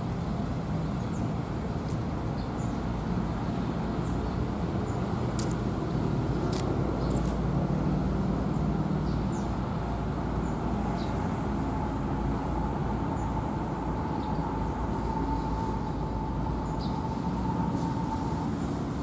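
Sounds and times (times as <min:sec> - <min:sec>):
road traffic rumble: 0:00.0 - 0:19.0
thin steady whine: 0:11.2 - 0:19.0.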